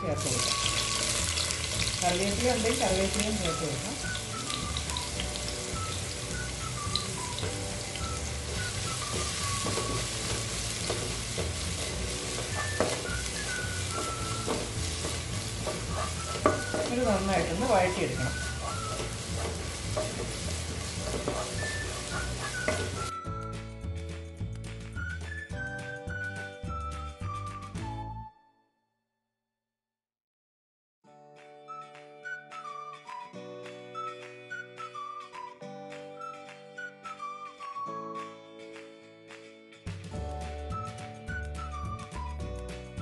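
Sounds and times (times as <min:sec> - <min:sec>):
beef sizzling in a pan: 0:00.0 - 0:23.1
spatula scraping pan: 0:07.2 - 0:23.1.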